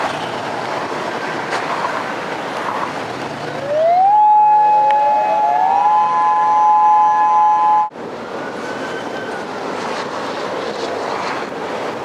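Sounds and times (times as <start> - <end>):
rushing background noise: 0.0 - 12.0
warning sirens wailing: 3.6 - 9.8.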